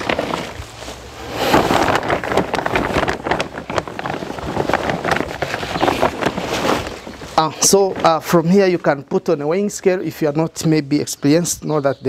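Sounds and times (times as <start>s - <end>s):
silage rustling and crunching: 0.0s - 9.2s.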